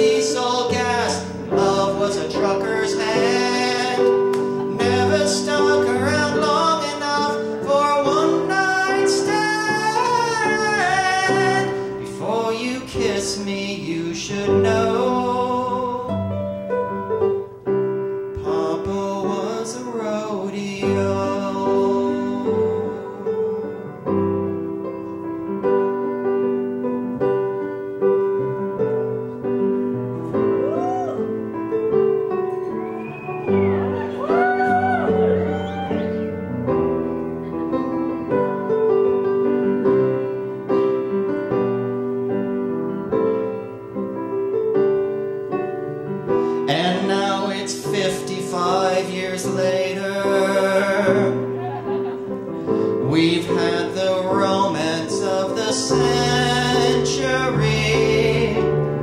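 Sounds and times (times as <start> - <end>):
operatic singing with vibrato: 0.0 - 16.3, 32.7 - 36.6, 52.8 - 59.0
piano playing chords: 0.0 - 59.0.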